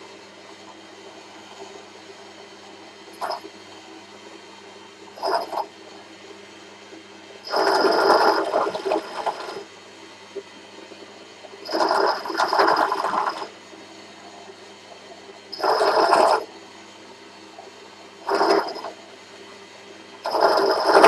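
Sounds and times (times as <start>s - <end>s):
drill press running: 7.5s - 9.7s, 11.6s - 13.6s, 15.5s - 16.5s, 18.2s - 19.0s, 20.2s - 21.0s.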